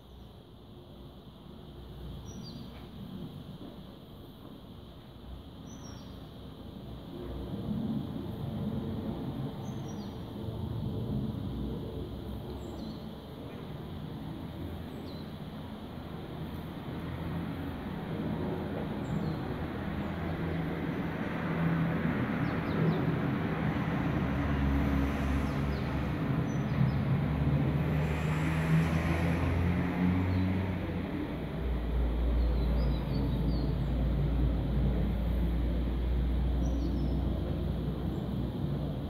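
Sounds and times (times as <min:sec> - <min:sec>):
low traffic rumble: 0:06.4 - 0:39.0
vehicle passing: 0:23.0 - 0:33.5.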